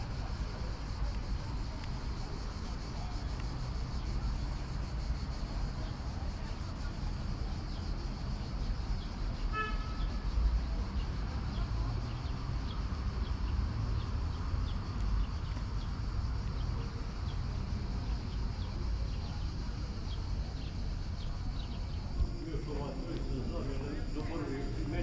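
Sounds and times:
street low rumble: 0:00.0 - 0:25.0
car horn toot: 0:09.5 - 0:10.2.

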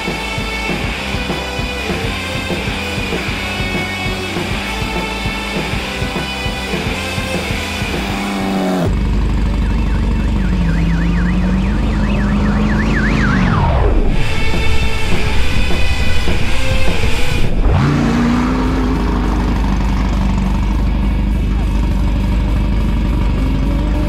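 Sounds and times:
rock music: 0:00.0 - 0:24.0
off-road vehicle engine passing: 0:01.1 - 0:24.0
fast warbling high tone: 0:09.5 - 0:19.2.

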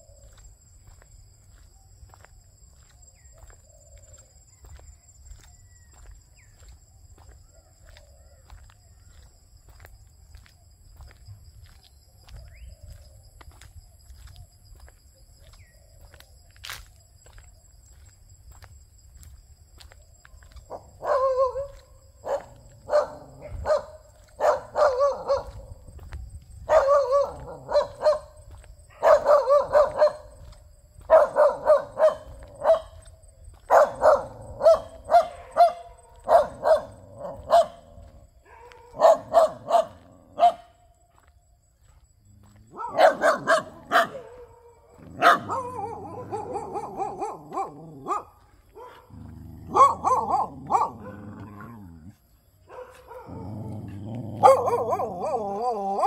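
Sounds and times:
dog barking: 0:20.7 - 0:25.8, 0:26.6 - 0:30.4, 0:31.0 - 0:40.9, 0:42.7 - 0:56.0.

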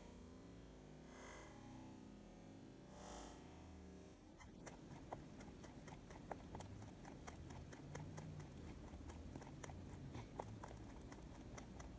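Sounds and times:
rabbit chewing pellets: 0:04.4 - 0:11.9.

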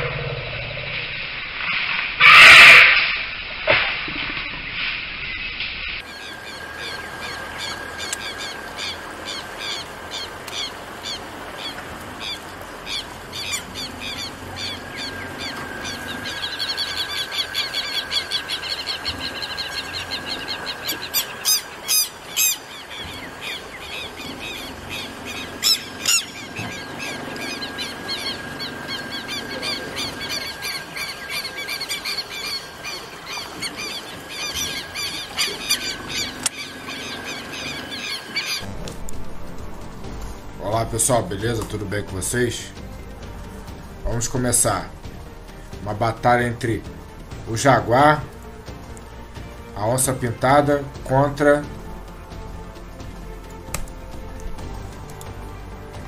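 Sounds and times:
birds calling in chorus: 0:05.3 - 0:38.7
steady high tone: 0:14.4 - 0:22.7, 0:24.8 - 0:39.0.

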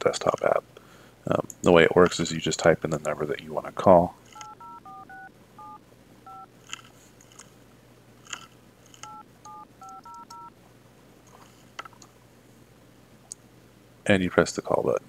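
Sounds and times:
dial-pad touch tones: 0:04.4 - 0:06.5, 0:09.0 - 0:10.5.

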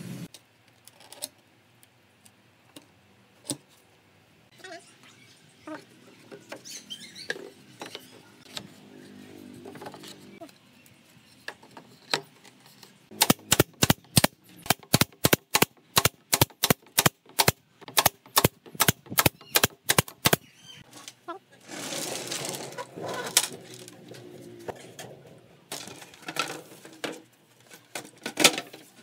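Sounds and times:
nail gun firing: 0:13.1 - 0:20.4.

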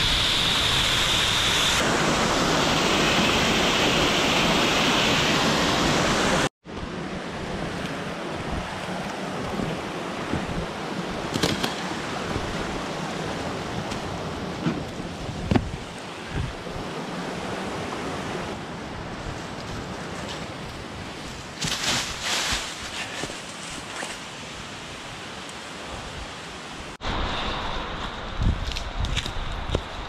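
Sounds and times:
footsteps on rock and leaves: 0:19.2 - 0:24.2.

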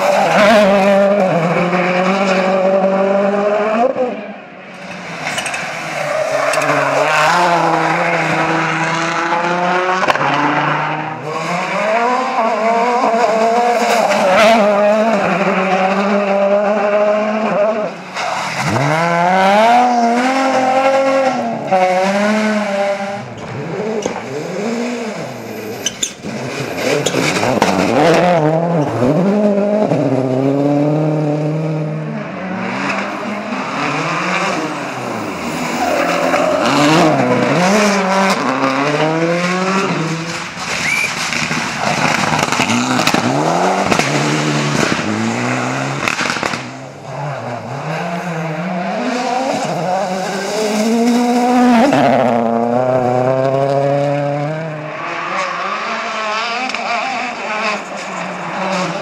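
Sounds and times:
rally car engines revving: 0:00.0 - 0:59.0
tyres on gravel: 0:40.2 - 0:46.8.

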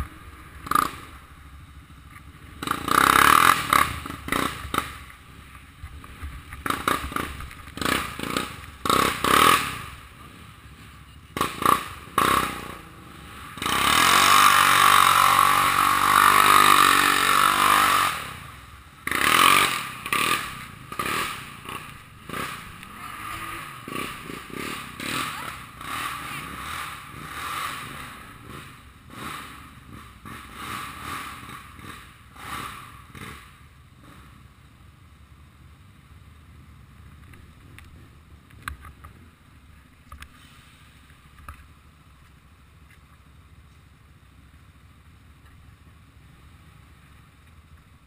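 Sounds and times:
quad engine revving: 0:00.0 - 0:01.6, 0:02.3 - 0:05.3, 0:06.0 - 0:10.6, 0:11.3 - 0:34.4.

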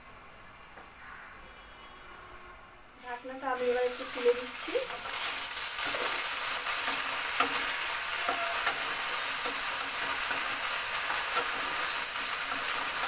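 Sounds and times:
potatoes sizzling in oil: 0:02.9 - 0:13.0
spatula scraping pan: 0:04.8 - 0:13.0.

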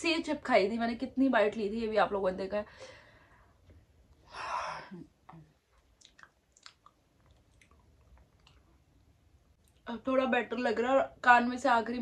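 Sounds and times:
mouth clicks and lip smacks: 0:05.2 - 0:09.9.

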